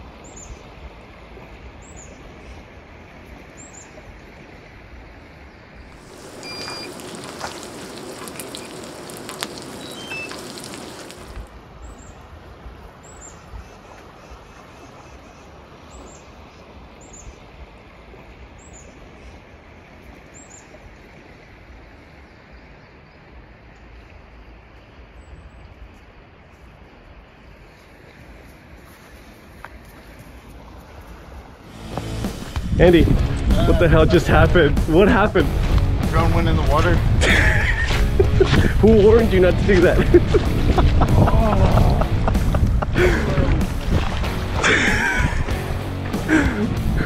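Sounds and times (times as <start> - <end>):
food sizzling on a pan: 6.0 - 11.4.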